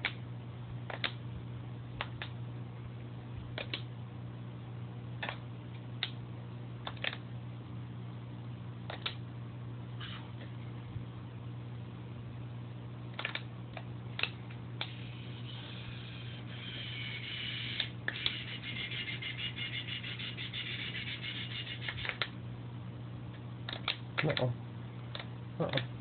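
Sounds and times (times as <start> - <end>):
aquarium equipment humming: 0.0 - 26.0
high fluttering whir: 14.9 - 22.1
sharp clicks: 17.7 - 22.4, 23.7 - 24.5.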